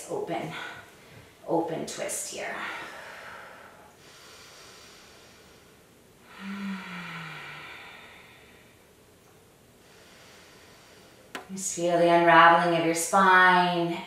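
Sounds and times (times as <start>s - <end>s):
woman breathing deeply: 2.5s - 9.0s, 9.8s - 11.4s.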